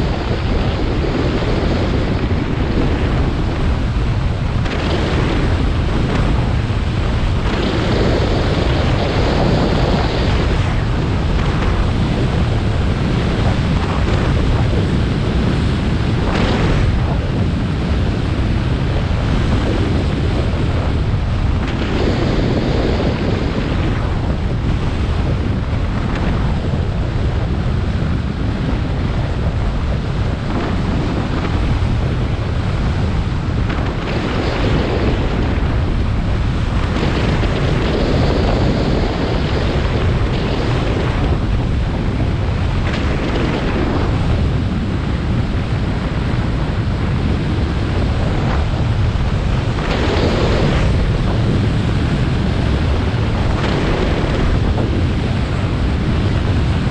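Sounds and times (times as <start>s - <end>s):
snowboard scraping over snow: 0.0s - 56.9s
wind rushing over microphone: 0.0s - 56.9s.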